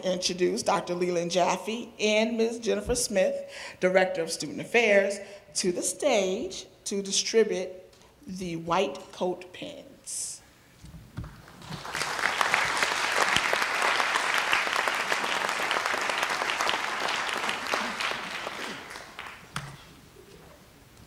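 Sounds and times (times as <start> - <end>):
audience applauding: 11.4 - 19.8.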